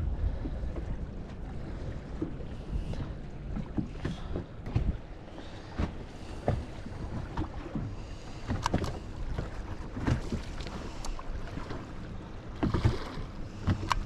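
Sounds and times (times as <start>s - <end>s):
wind on microphone: 0.0s - 7.8s
waves slapping boat hull: 0.0s - 14.0s.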